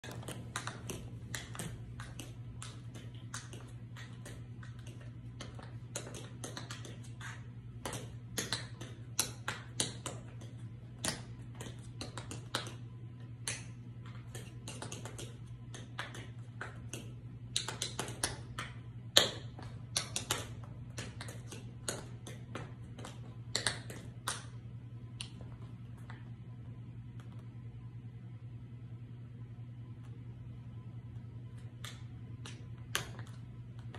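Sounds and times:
tap shoes clicking on hard floor: 0:00.0 - 0:24.6
steady low hum: 0:00.0 - 0:33.9.

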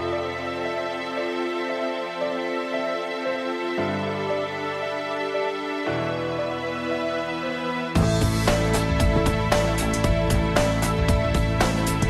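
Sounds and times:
low bass notes: 0:08.2 - 0:11.6.

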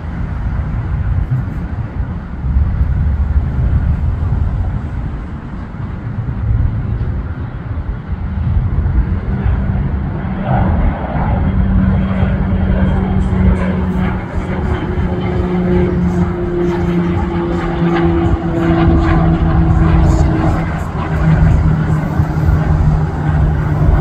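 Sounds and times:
low uneven rumble: 0:00.0 - 0:24.0
propeller airplane engine drone: 0:00.0 - 0:24.0.

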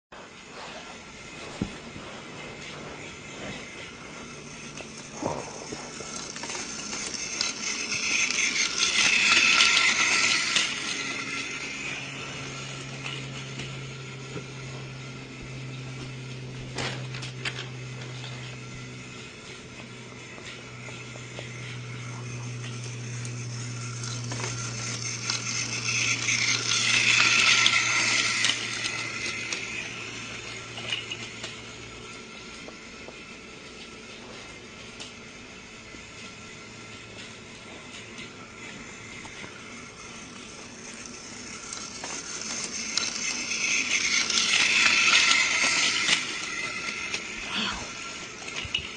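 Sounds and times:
small motor humming: 0:00.2 - 0:48.9
small mechanism clattering and clicking: 0:04.6 - 0:12.0, 0:16.7 - 0:18.6, 0:20.4 - 0:31.8, 0:37.9 - 0:48.9.

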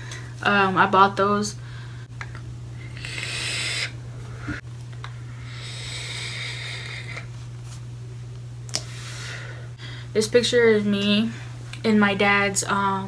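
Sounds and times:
low electrical hum: 0:00.0 - 0:13.0
person breathing out: 0:02.8 - 0:04.6, 0:05.3 - 0:07.3.

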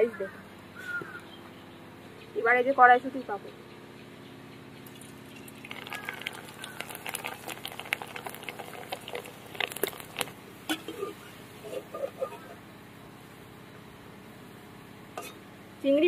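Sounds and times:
frying oil crackling and popping: 0:04.8 - 0:12.5.

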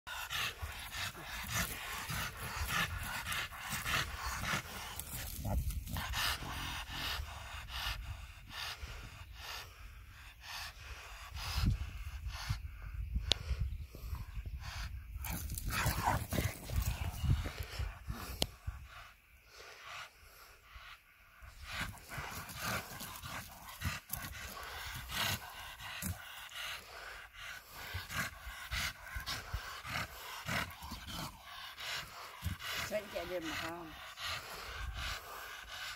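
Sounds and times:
dogs panting: 0:00.1 - 0:35.9.

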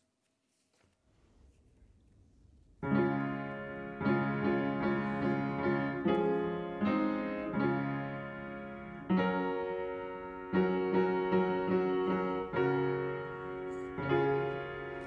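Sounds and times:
piano chords ringing: 0:02.8 - 0:15.0.

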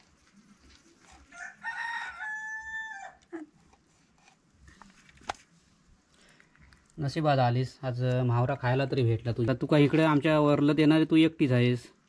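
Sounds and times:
rooster crowing: 0:01.3 - 0:03.2.

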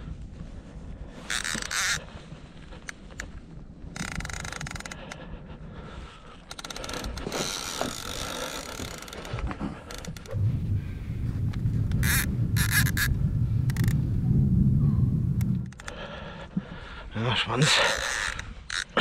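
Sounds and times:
fishing reel buzzing: 0:01.3 - 0:02.0, 0:04.0 - 0:05.0, 0:06.5 - 0:09.3, 0:12.0 - 0:13.1, 0:17.8 - 0:19.0
fishing reel clicks: 0:01.3 - 0:02.0, 0:03.9 - 0:05.2, 0:06.5 - 0:09.2, 0:17.8 - 0:19.0.

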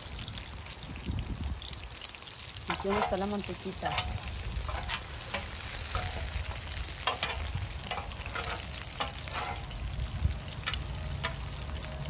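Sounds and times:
meat and onions sizzling: 0:00.0 - 0:12.0
metal tongs clicking and scraping: 0:03.9 - 0:09.8.

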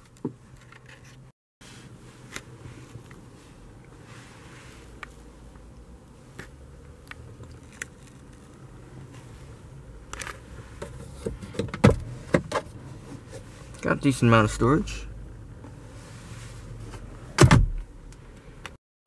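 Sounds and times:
glove box clicks and scrapes: 0:00.0 - 0:03.2, 0:10.1 - 0:13.9.

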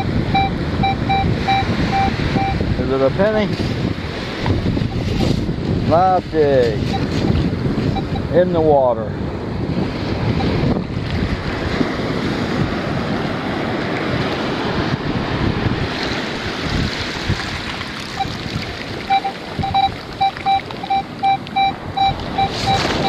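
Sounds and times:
metal detector short beeps: 0:00.0 - 0:02.6, 0:04.9 - 0:05.4, 0:06.8 - 0:07.2, 0:07.9 - 0:08.3, 0:19.1 - 0:23.0
surf washing: 0:00.0 - 0:23.0
wind on microphone: 0:00.0 - 0:23.0.

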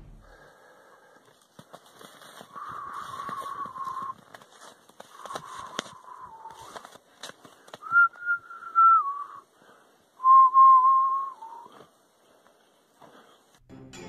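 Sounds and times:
person whistling drawn-out notes: 0:02.6 - 0:04.2, 0:07.8 - 0:09.4, 0:10.2 - 0:11.8.

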